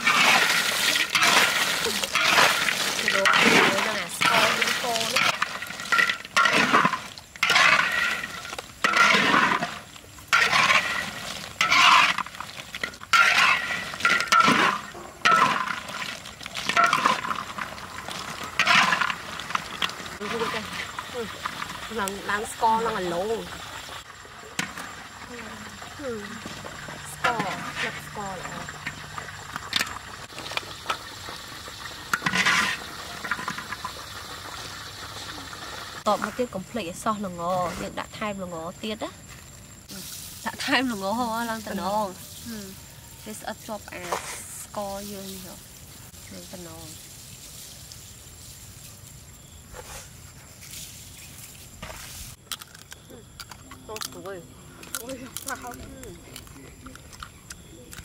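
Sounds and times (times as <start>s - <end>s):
metal spatula scraping a wok: 0.0s - 21.0s, 32.1s - 33.8s
fried food rattling in a wok: 0.0s - 22.0s, 28.5s - 36.1s.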